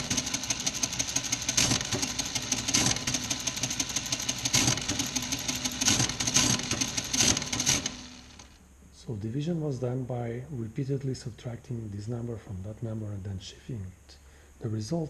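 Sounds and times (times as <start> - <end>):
mechanical calculator clattering: 0.0 - 8.6.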